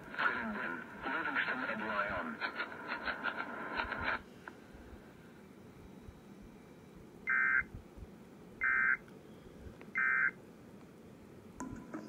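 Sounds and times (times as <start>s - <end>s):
short bursts of data tones: 7.3s - 7.7s, 8.6s - 9.0s, 10.0s - 10.4s.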